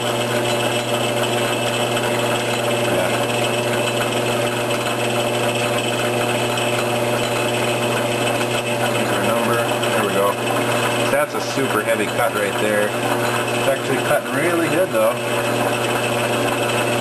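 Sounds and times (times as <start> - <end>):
metal lathe humming: 0.0 - 17.0.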